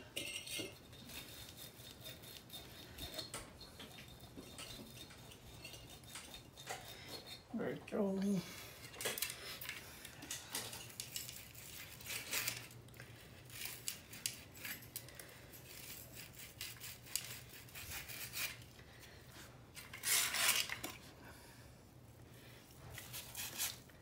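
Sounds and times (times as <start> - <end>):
sanding metal tube by hand: 0.9 - 3.2.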